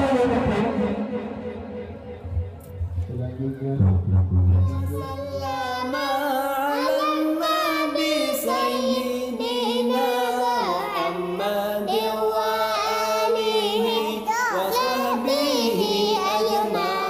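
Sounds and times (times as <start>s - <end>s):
high singing voice: 4.4s - 17.0s.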